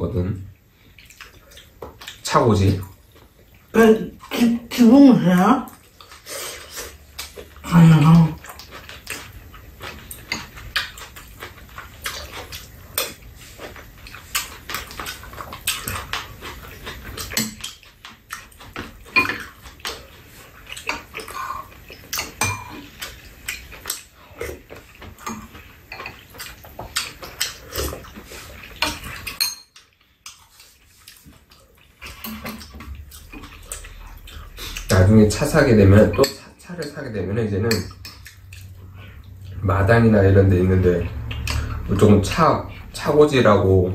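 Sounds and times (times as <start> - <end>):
eating sounds: 0.6 - 43.9
cutlery clinking on bowls: 15.7 - 20.1, 20.7 - 24.1, 25.0 - 28.0, 28.7 - 30.4, 32.0 - 33.9, 35.9 - 37.0.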